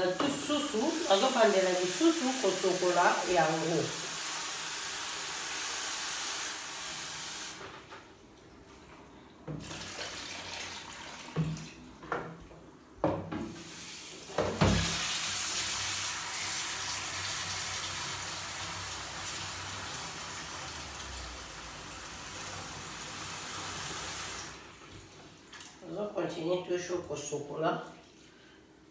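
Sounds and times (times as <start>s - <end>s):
tap running into plastic basin: 9.5s - 12.4s
water pouring over greens: 9.6s - 11.8s.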